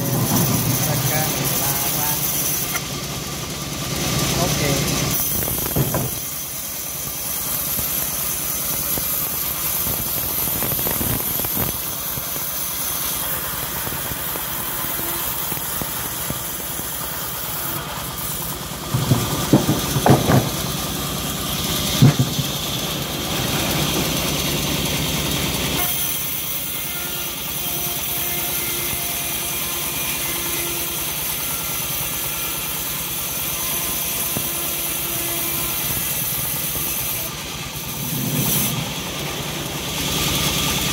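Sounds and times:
bandsaw mill sawing timber: 0:00.0 - 0:40.9
sharp knocks: 0:05.4 - 0:06.3, 0:18.9 - 0:20.8, 0:21.9 - 0:22.8.

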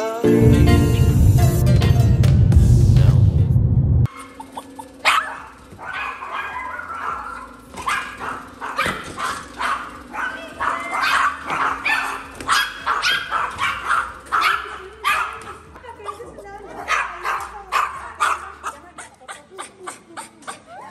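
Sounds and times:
background music: 0:00.0 - 0:04.1
small dog barking: 0:04.1 - 0:20.7.

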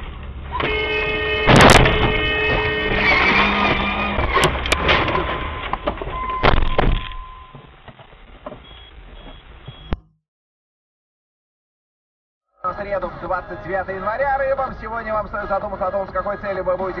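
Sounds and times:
street traffic: 0:00.0 - 0:10.0, 0:12.5 - 0:17.0
car horn: 0:00.5 - 0:04.5.

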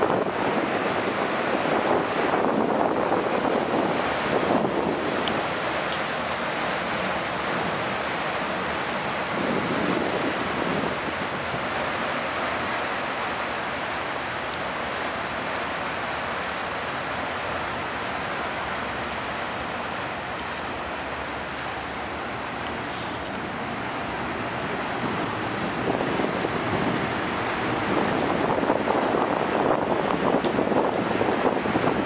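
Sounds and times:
wind on microphone: 0:00.0 - 0:12.2, 0:21.5 - 0:32.0
propeller wash churning water: 0:00.0 - 0:32.0.

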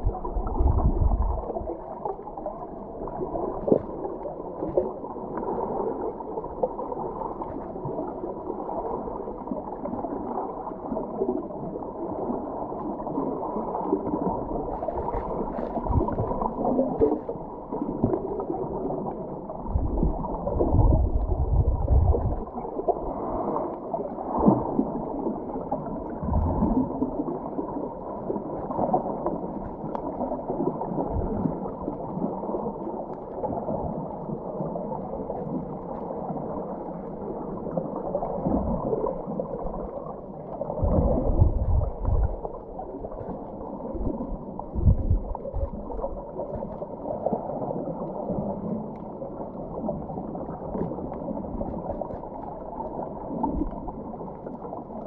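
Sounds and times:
low underwater rumbles: 0:00.0 - 0:55.0
water churning underwater: 0:00.0 - 0:55.0.

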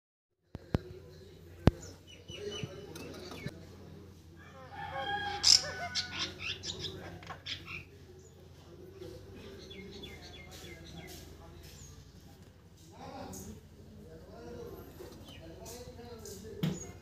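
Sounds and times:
starling chattering calls: 0:04.9 - 0:08.0, 0:09.2 - 0:12.0.

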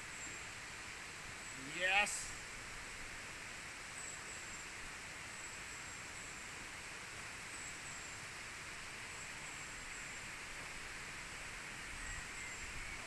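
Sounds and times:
flowing water rushing: 0:00.0 - 0:13.0
faint high-pitched chirps: 0:11.9 - 0:13.0.

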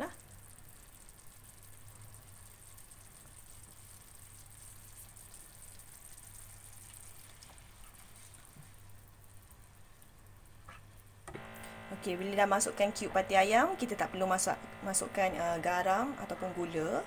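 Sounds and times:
sauce sizzling in a frying pan: 0:00.2 - 0:10.6
low steady hum: 0:05.4 - 0:17.0.

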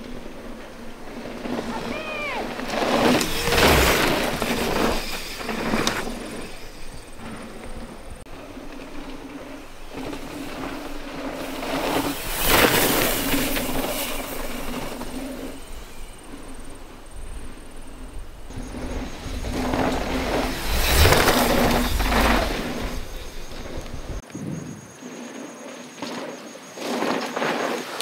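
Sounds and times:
bike tyre and drivetrain rattle: 0:00.0 - 0:28.0
wind rushing: 0:01.5 - 0:07.2, 0:11.8 - 0:25.2.

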